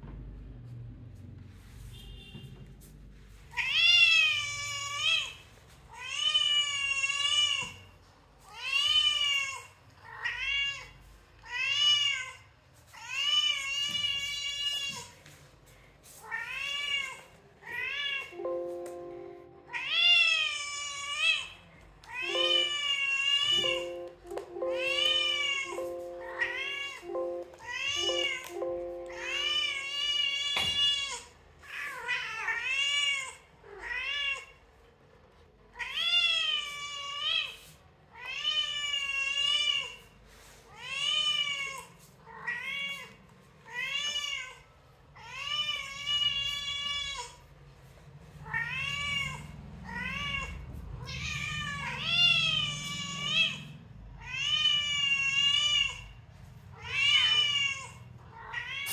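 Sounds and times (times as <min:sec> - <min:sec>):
cat meowing: 0:48.4 - 0:56.1, 0:56.7 - 0:58.9.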